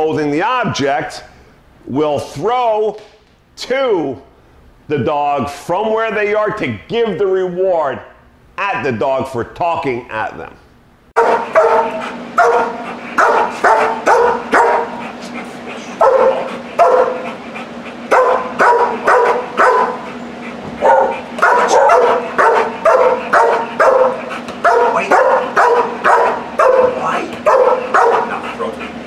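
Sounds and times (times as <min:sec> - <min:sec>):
dog barking: 0:11.2 - 0:15.0, 0:16.0 - 0:17.3, 0:18.1 - 0:20.1, 0:20.8 - 0:28.5.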